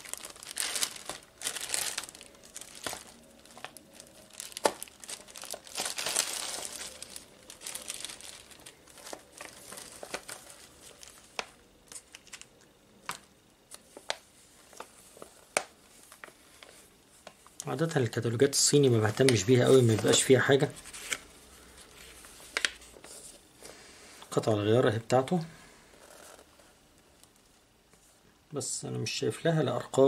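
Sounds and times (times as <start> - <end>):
plastic bag crinkling: 0.0 - 16.7.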